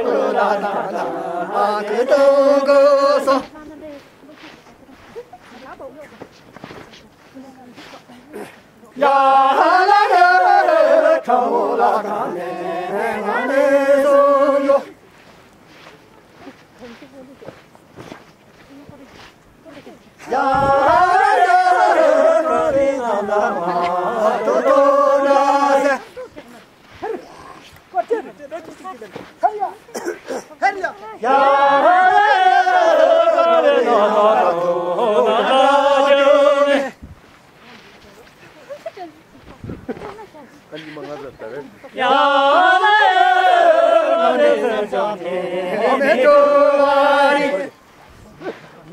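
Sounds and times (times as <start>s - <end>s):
group singing unaccompanied: 0.0s - 5.6s, 7.8s - 17.0s, 20.1s - 38.6s, 41.0s - 48.9s.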